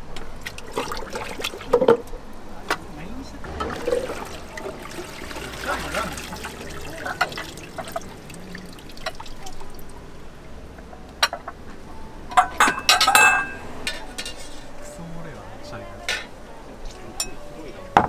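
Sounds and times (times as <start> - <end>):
water splashing in bucket: 0.4 - 2.0, 3.5 - 9.9
ceramic bowls clinking together: 3.4 - 9.7, 12.3 - 14.6, 17.2 - 18.0.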